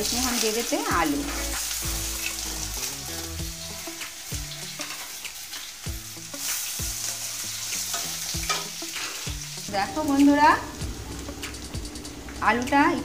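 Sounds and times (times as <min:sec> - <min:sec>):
potatoes sizzling in oil: 0:00.0 - 0:13.0
spatula scraping a pan: 0:04.6 - 0:05.7.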